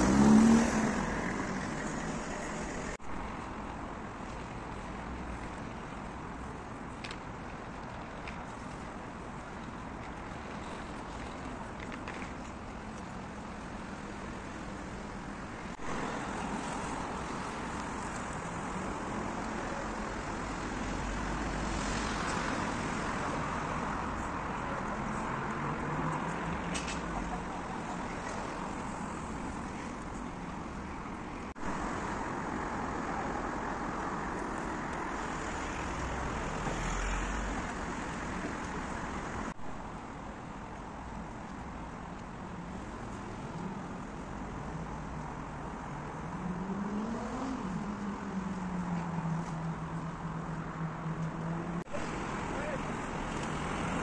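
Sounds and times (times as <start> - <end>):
hum of passing cars: 0.0 - 7.2, 13.7 - 30.8, 31.4 - 54.0
low rumble of passing vehicles: 0.0 - 54.0.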